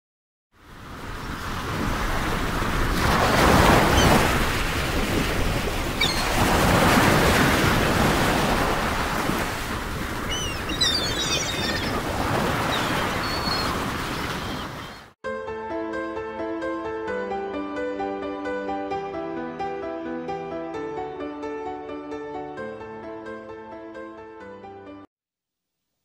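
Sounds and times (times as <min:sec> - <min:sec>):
waves lapping: 0:00.6 - 0:15.2
wind buffeting microphone: 0:01.0 - 0:14.9.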